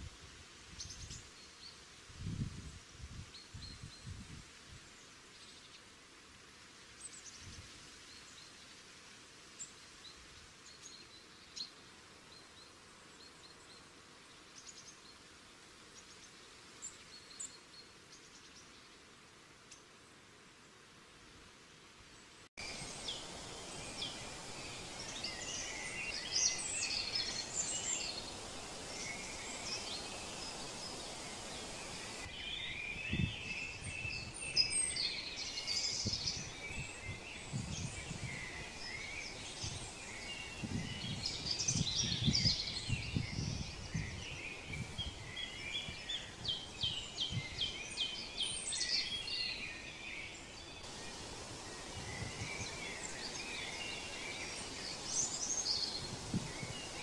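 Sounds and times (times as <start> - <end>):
steady background hiss: 0.0 - 57.0
small birds chirping: 22.2 - 57.0.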